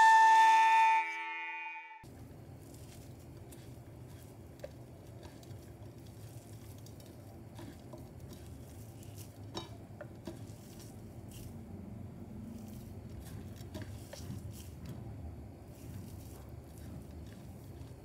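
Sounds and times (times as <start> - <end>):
hands squishing meat mixture: 2.0 - 18.0.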